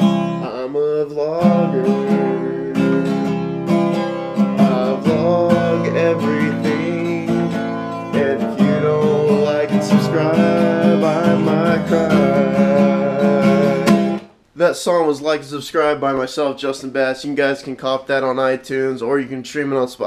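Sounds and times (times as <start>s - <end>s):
acoustic guitar strumming: 0.0s - 14.4s
man singing: 0.4s - 3.4s, 4.6s - 14.2s.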